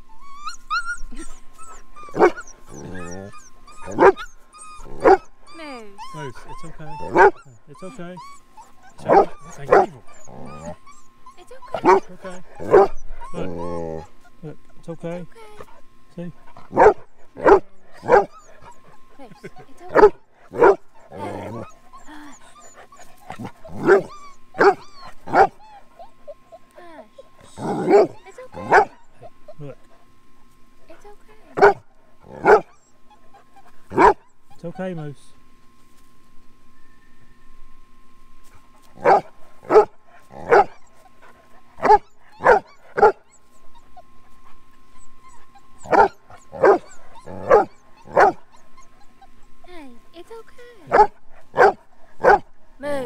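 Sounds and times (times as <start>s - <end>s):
dog whining: 0.0s - 15.8s, 16.4s - 30.1s, 30.9s - 35.1s, 38.9s - 53.0s
dog barking: 3.8s - 4.2s, 5.0s - 5.2s, 9.0s - 10.0s, 11.7s - 13.0s, 16.7s - 18.3s, 19.9s - 20.8s, 31.6s - 31.8s, 32.4s - 32.7s, 33.9s - 34.2s, 39.0s - 40.8s, 41.8s - 43.2s, 45.9s - 48.4s, 50.9s - 52.5s.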